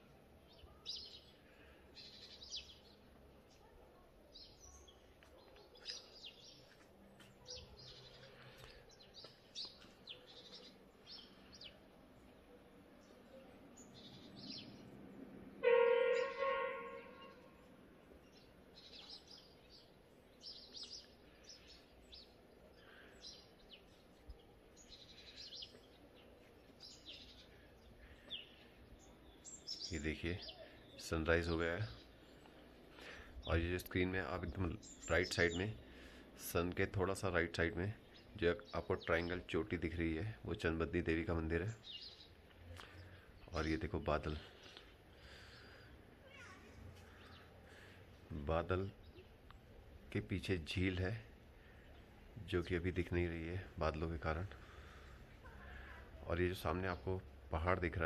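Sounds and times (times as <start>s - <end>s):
small birds chirping: 0.0s - 58.0s
louder bird call: 15.6s - 17.7s.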